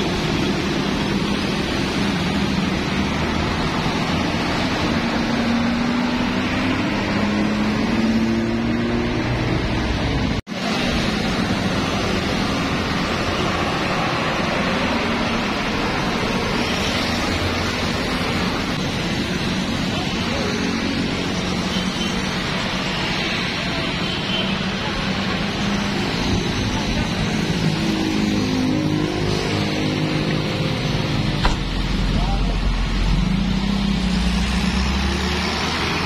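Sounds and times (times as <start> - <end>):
road traffic noise: 0.0 - 36.0.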